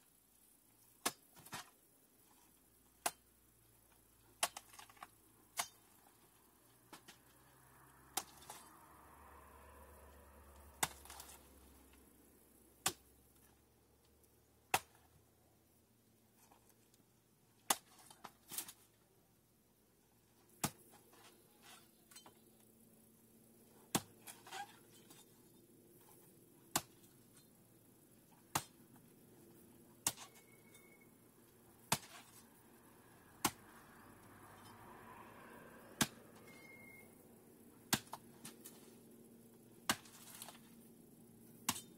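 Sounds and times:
hand tool chopping plants: 10.7s - 11.4s, 23.8s - 25.2s, 26.7s - 27.1s, 31.9s - 32.4s, 33.4s - 33.7s, 36.0s - 36.2s, 37.9s - 38.8s, 39.8s - 40.6s, 41.6s - 41.9s.

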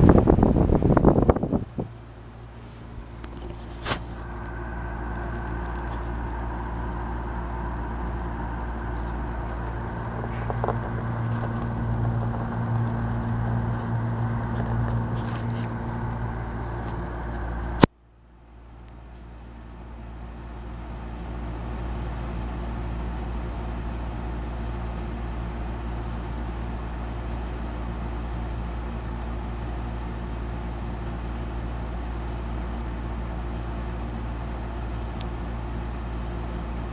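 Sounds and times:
air conditioner humming: 0.0s - 36.9s.

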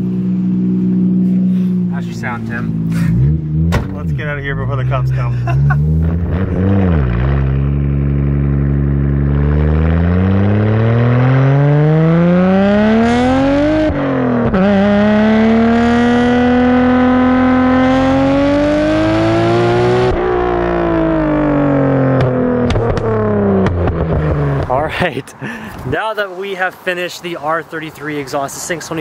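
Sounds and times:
car engine revving through exhaust: 0.0s - 24.8s.

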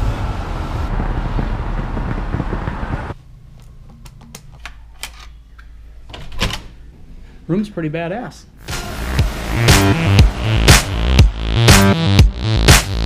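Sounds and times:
city street traffic: 0.0s - 3.5s, 8.5s - 11.7s.

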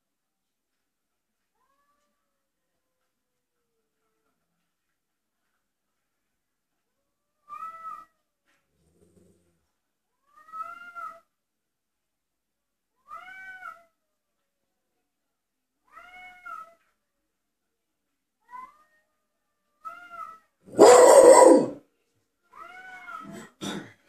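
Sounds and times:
cats yowling: 19.9s - 21.8s.

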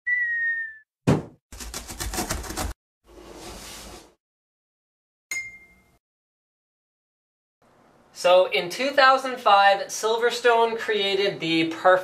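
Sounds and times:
cartoon whistle dipping in pitch: 0.0s - 0.9s
sharp thump: 1.1s - 1.4s
bright ringing ding: 5.3s - 6.0s.

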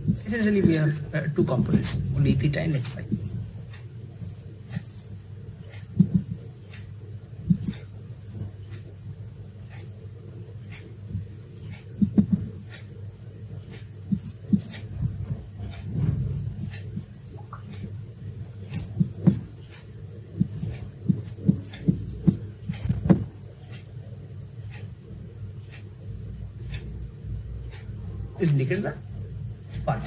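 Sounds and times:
marker writing on whiteboard: 0.0s - 6.9s, 7.5s - 7.9s, 13.6s - 23.9s
low steady hum: 0.0s - 30.0s.

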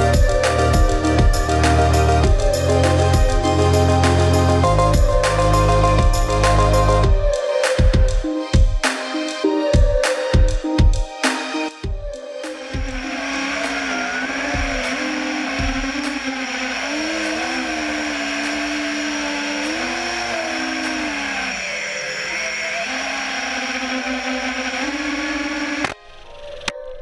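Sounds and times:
drone motors whining: 0.0s - 27.0s.

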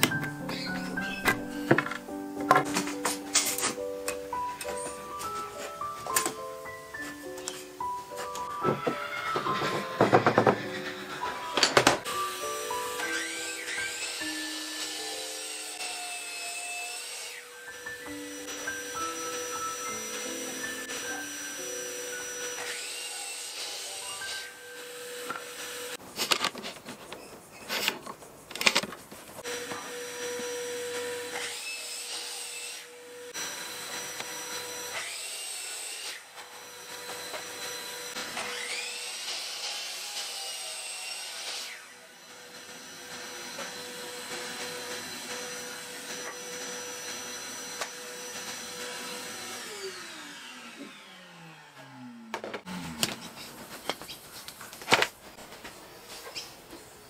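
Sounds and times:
mitre saw cutting wood: 4.7s - 26.0s, 29.4s - 55.0s
dust extractor whine: 17.3s - 26.0s, 41.7s - 53.9s.

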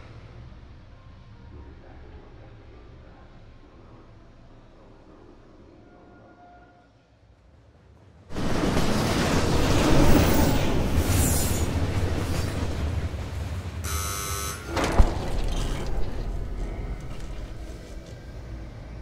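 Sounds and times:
harsh buzz: 13.9s - 15.3s
low rumble: 14.7s - 19.0s.

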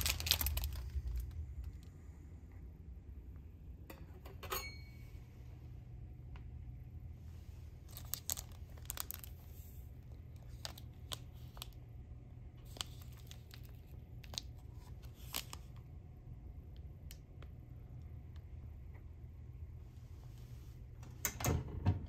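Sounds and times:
foil sachets crinkling: 0.0s - 1.8s, 7.8s - 11.8s, 12.6s - 15.8s
low steady hum: 0.0s - 22.0s.

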